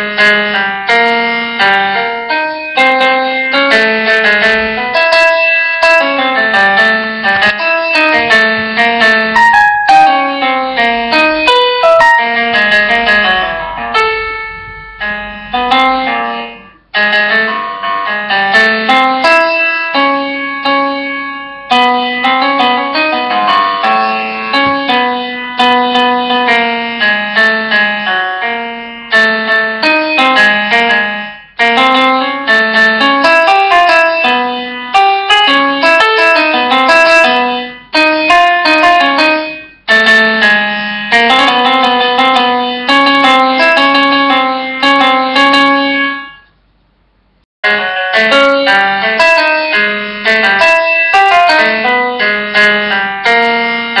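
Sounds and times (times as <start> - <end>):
piano music: 0.0 - 46.6, 47.6 - 54.0.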